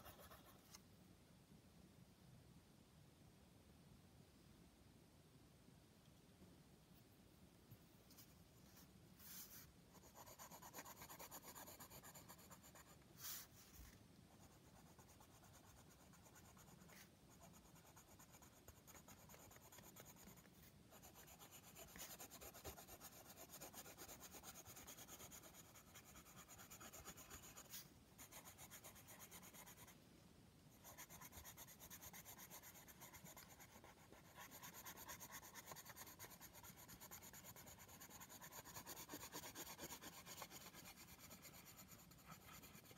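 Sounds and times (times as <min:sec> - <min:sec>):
pencil shading on paper: 0:09.2 - 0:13.5, 0:14.3 - 0:29.9, 0:30.7 - 0:42.9.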